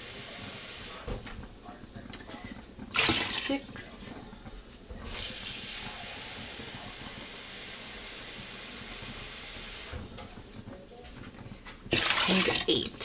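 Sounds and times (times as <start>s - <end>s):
water pouring into a pot: 2.8s - 9.9s, 11.9s - 13.0s.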